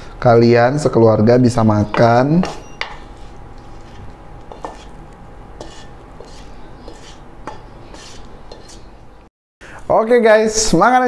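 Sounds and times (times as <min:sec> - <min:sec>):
spatula scraping a frying pan: 0:03.0 - 0:09.0.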